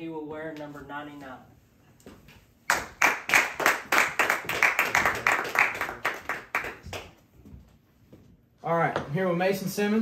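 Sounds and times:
hands clapping: 0:02.7 - 0:07.3.

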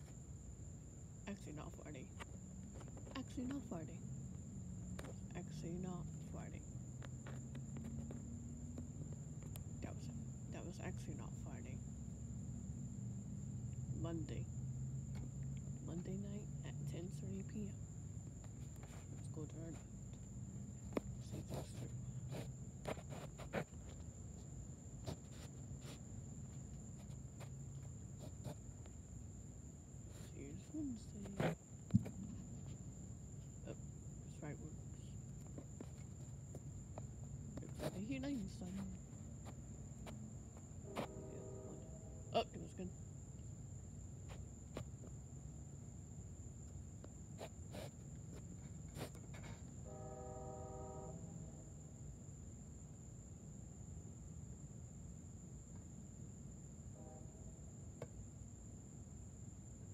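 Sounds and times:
insect trill: 0:00.0 - 0:59.9
low hum: 0:36.6 - 0:43.0.

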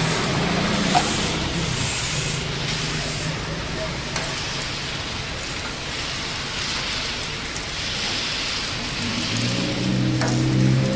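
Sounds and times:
aerosol spray can hissing: 0:00.0 - 0:03.4.

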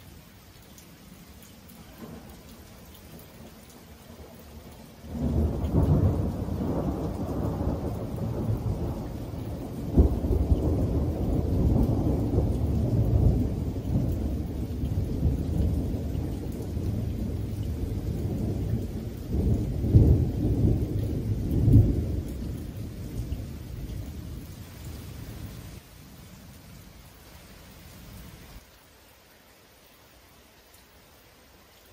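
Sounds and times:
rain falling: 0:00.0 - 0:31.9
sharp thunder claps: 0:05.1 - 0:09.3, 0:18.2 - 0:24.4
rolling thunder rumble: 0:05.1 - 0:25.5.

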